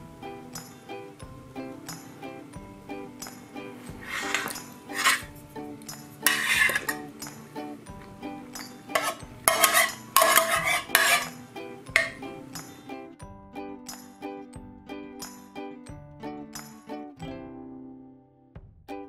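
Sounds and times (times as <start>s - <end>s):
dishes and cutlery clattering: 3.3s - 12.7s.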